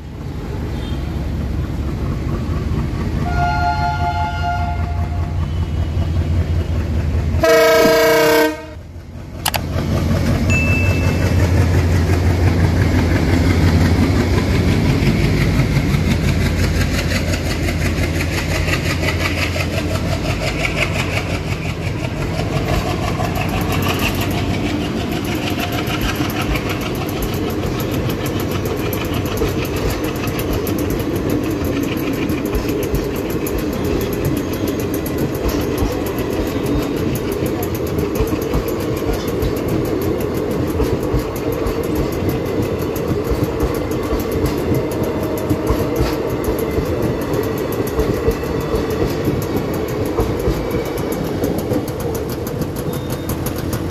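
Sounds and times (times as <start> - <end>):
train wheels clacking on rails: 0.0 - 53.9
diesel engine chugging: 0.1 - 53.9
locomotive horn blast: 3.2 - 5.8, 7.4 - 8.8.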